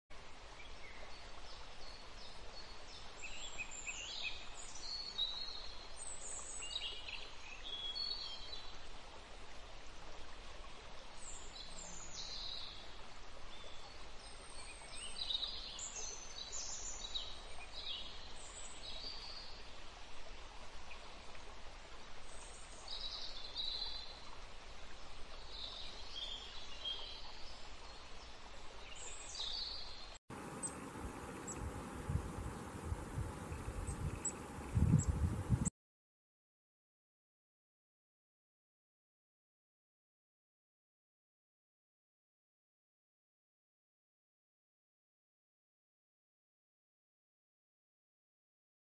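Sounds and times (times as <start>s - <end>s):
songbirds chirping: 22.3s - 35.7s
background hiss: 27.4s - 35.7s.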